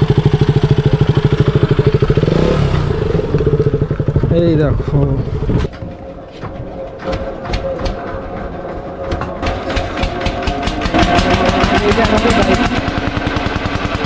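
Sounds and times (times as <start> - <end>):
boat engine chugging: 6.1 - 14.0.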